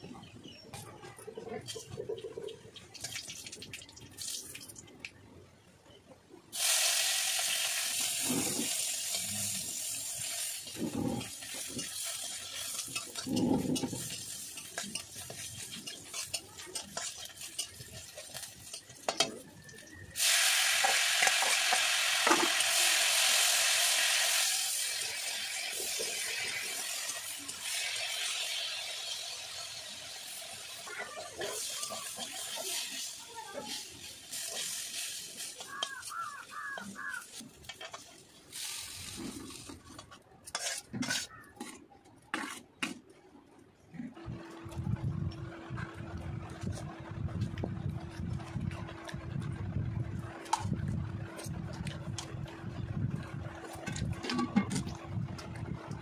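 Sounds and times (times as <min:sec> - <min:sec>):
oil sizzling as food fries: 0:02.8 - 0:04.9, 0:06.5 - 0:41.2
spatula stirring in pan: 0:07.4 - 0:42.9.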